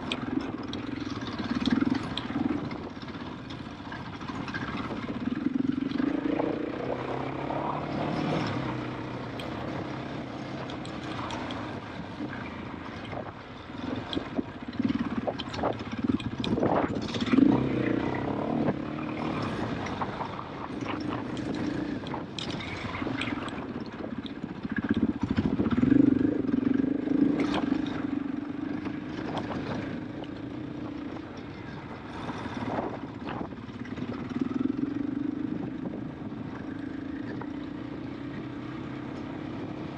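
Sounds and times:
motorcycle engine revving: 0.0 - 39.9.

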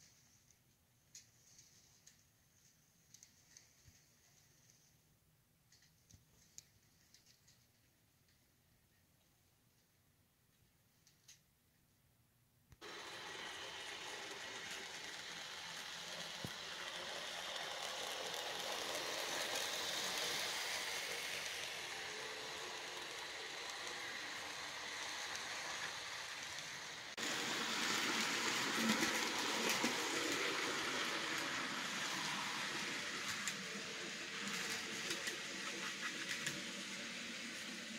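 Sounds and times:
model train whirring on rails: 12.8 - 37.9.

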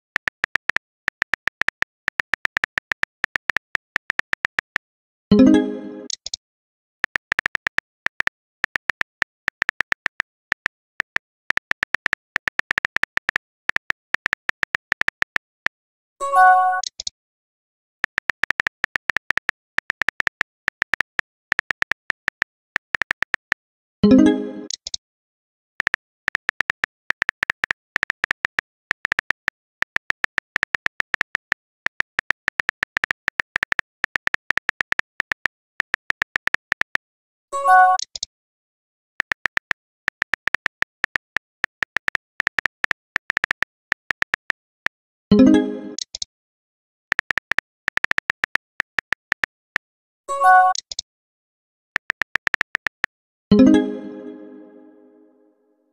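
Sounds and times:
phone keyboard typing clicks: 0.0 - 4.8, 7.0 - 15.7, 18.0 - 23.6, 25.8 - 37.2, 37.9 - 38.3, 39.0 - 46.3, 47.0 - 49.9, 50.6 - 51.0, 51.8 - 53.7.

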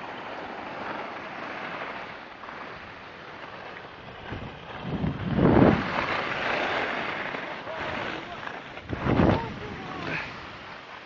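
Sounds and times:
skis scraping over packed snow: 0.0 - 11.0
wind rushing on microphone: 4.1 - 6.4, 7.6 - 10.7.

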